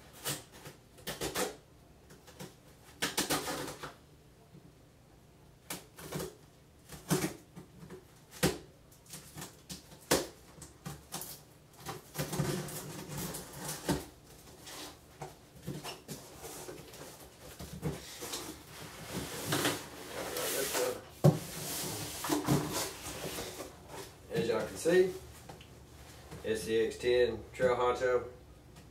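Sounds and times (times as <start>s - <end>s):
cardboard scraping and rustling: 10.9s - 24.9s.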